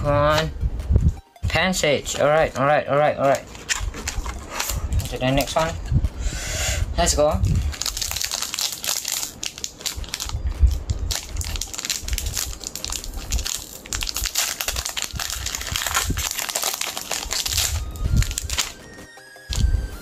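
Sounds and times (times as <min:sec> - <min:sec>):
foil wrapper tearing and crinkling: 0:03.4 - 0:05.7, 0:07.4 - 0:18.8, 0:19.4 - 0:19.7.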